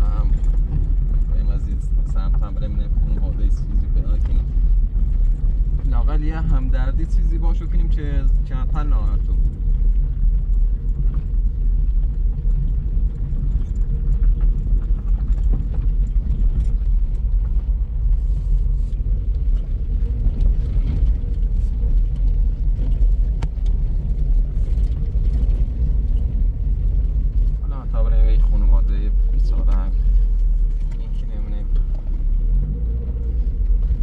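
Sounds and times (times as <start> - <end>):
car engine and road rumble: 0.0 - 34.0.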